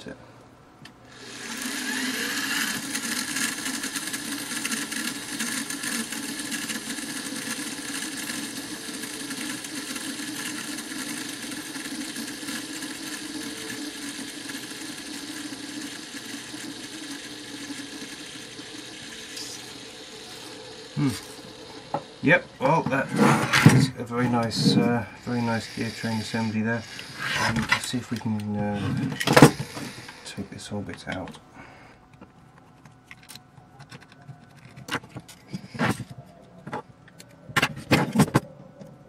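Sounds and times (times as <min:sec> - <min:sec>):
metal gear train whirring: 0:01.1 - 0:30.4.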